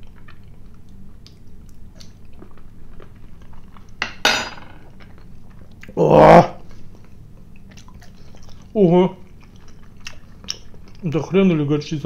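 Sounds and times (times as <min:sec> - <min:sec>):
cutlery clinking on a plate: 0:04.0 - 0:04.8.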